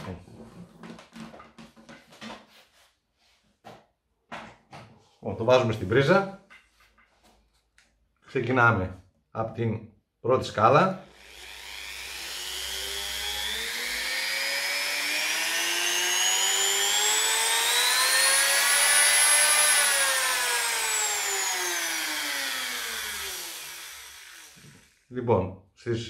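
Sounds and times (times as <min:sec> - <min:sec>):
rotary tool motor whine: 0:11.0 - 0:25.1.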